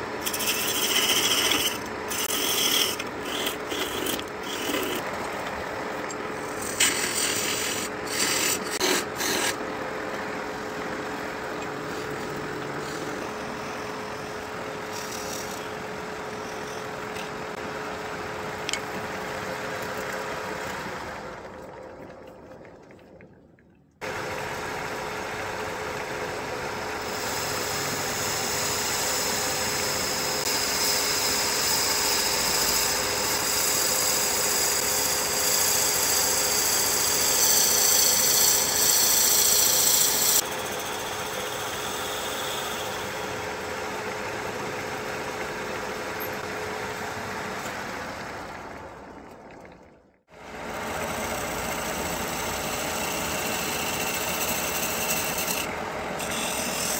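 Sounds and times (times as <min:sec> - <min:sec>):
tool cutting wood shavings hiss: 0:00.0 - 0:05.1, 0:06.4 - 0:09.6, 0:27.0 - 0:43.3, 0:51.0 - 0:56.9
wood lathe humming: 0:00.0 - 0:19.2, 0:24.1 - 0:46.4, 0:50.5 - 0:56.9.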